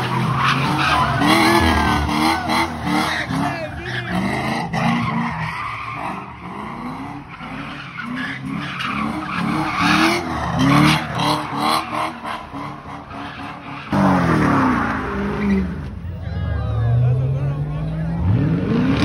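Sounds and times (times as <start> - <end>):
car engine revving: 0.0 - 16.2, 16.9 - 19.0
tyres squealing on pavement: 0.0 - 16.4.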